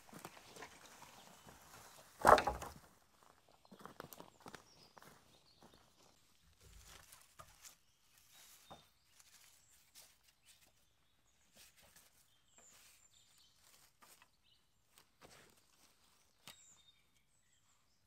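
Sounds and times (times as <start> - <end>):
wooden pole knocks and rustles: 2.2 - 2.9.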